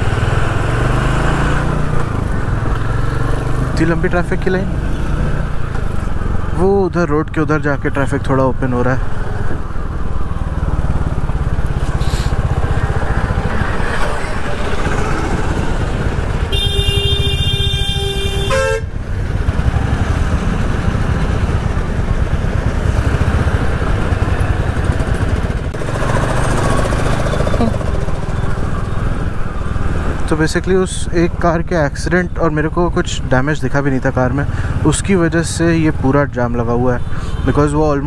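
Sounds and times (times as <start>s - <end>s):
motorcycle engine running: 9.2s - 29.5s
vehicle horn blast: 16.5s - 18.9s.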